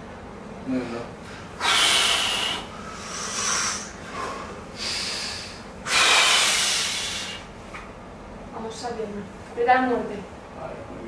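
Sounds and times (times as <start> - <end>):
man breathing hard: 1.4 - 7.5.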